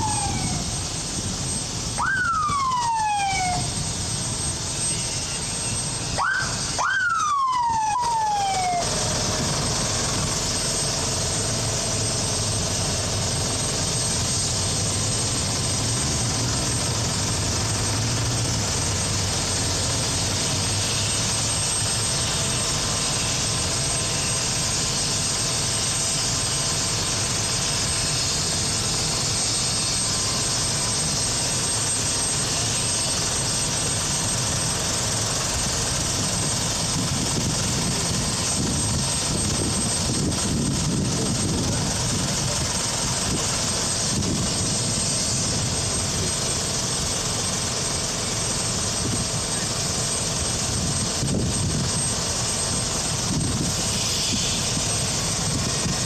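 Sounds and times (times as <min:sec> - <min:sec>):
police siren whoops: 0:00.0 - 0:01.2, 0:01.9 - 0:11.4
helicopter turbine whine: 0:00.0 - 0:56.0.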